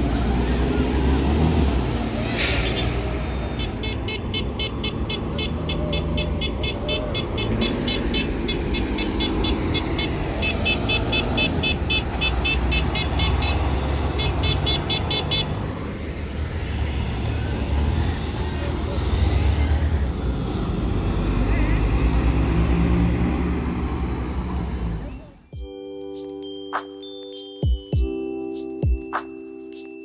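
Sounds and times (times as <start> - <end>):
bus engines rumbling: 0.0 - 25.5
short air hiss: 2.2 - 3.2.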